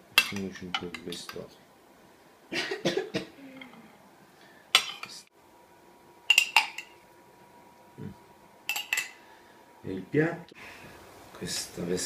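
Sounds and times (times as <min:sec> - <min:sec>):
cutlery clinking on ceramic plate: 0:08.7 - 0:09.2.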